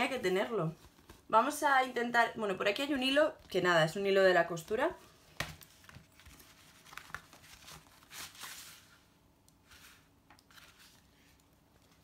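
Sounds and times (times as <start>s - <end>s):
packaging rustling and crinkling: 5.3s - 9.0s.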